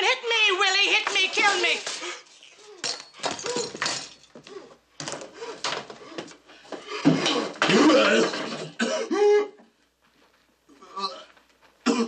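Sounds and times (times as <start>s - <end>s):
gasps and sobbing breaths: 8.8s - 9.6s.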